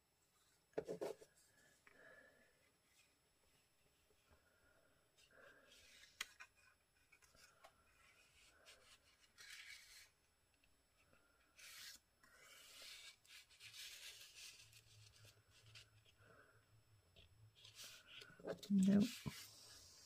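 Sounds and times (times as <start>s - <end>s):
paper rustling and sliding: 5.7s - 10.2s.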